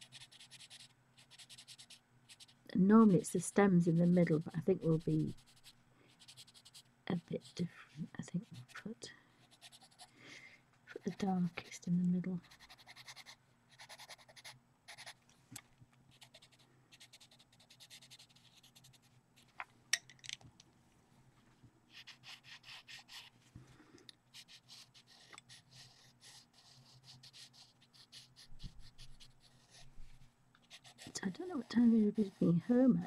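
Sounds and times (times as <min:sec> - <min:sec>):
pencil scratching on paper: 0:00.0 - 0:03.1, 0:03.7 - 0:07.6, 0:09.4 - 0:10.1, 0:12.4 - 0:15.2, 0:16.1 - 0:19.1, 0:21.9 - 0:23.3, 0:24.3 - 0:30.0, 0:30.6 - 0:33.0.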